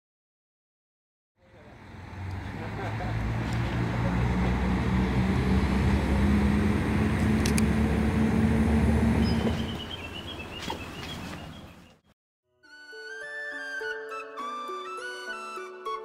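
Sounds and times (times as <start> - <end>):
diesel railcar engine droning: 1.4 - 10.5.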